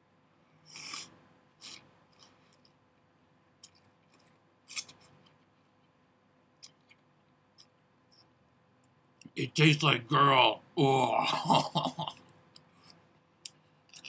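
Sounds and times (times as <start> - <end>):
person slurping noodles: 0.7 - 1.8.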